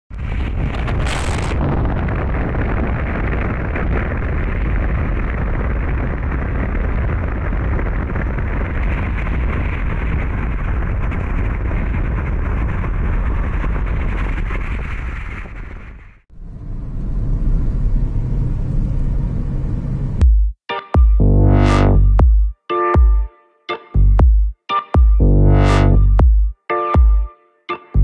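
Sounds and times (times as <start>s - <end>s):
wind noise: 0.1s - 20.2s.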